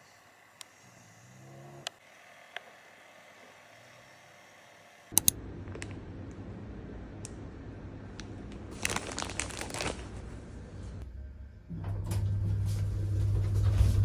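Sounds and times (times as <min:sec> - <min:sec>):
plastic food packet crinkling: 0:08.6 - 0:10.4.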